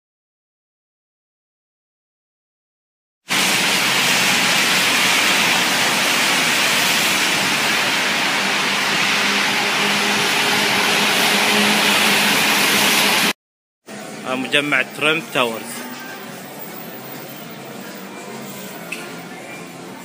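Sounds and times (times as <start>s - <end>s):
tyres hissing on wet road: 3.3s - 13.4s, 14.9s - 20.0s.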